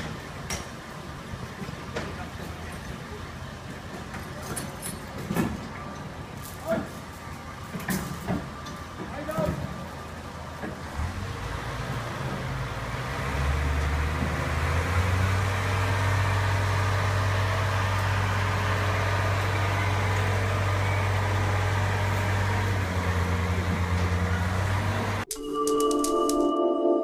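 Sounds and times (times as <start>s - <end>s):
large engine droning: 7.4s - 25.3s.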